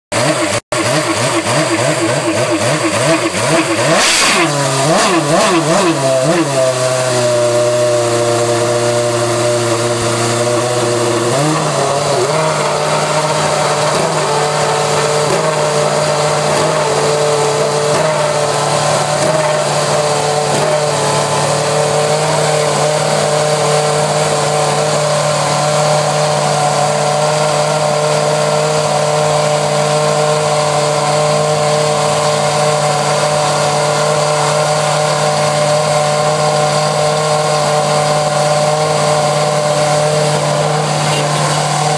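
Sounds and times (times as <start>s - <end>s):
racing car engine idling: 0.2s - 41.9s.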